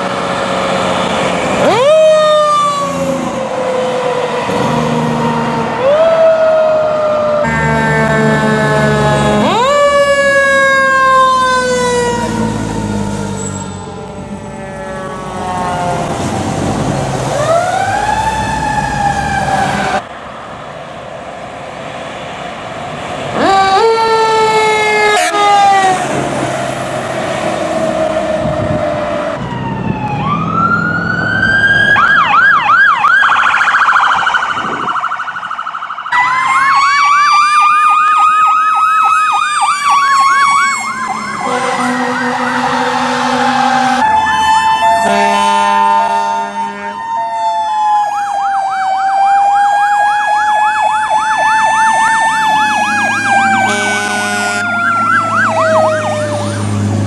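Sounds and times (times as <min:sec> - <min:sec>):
fire engine sirens wailing: 0:00.0 - 0:57.0
horn blasts: 0:07.5 - 0:09.6, 0:24.8 - 0:26.0, 0:41.4 - 0:44.0, 0:45.0 - 0:47.0, 0:53.6 - 0:54.8.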